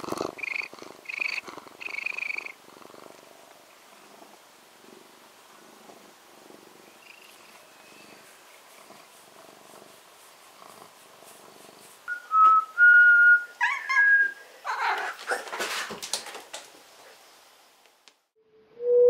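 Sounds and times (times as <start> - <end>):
cat purring: 0.0 - 12.1
scratchy rustling: 7.3 - 12.1
person whistling: 12.1 - 13.5, 18.8 - 19.0
cat meowing: 13.6 - 15.2.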